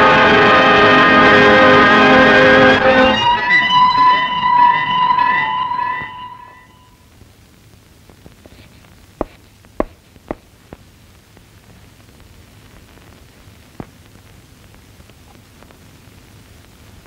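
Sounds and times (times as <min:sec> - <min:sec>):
film soundtrack hiss: 0:04.4 - 0:17.0
sharp knocks: 0:09.2 - 0:10.5.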